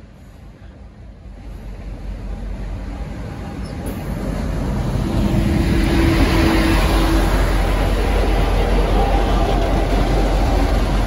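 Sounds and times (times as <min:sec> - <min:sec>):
diesel locomotive engine and running gear: 0:00.0 - 0:11.0.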